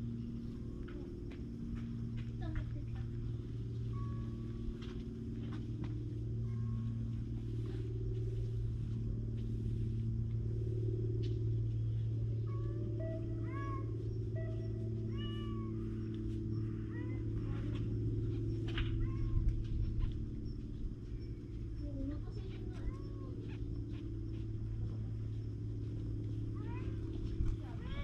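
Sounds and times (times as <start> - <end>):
steady low rumble: 0.0 - 28.0
cat meowing: 12.6 - 16.2, 16.8 - 17.7, 18.7 - 19.6.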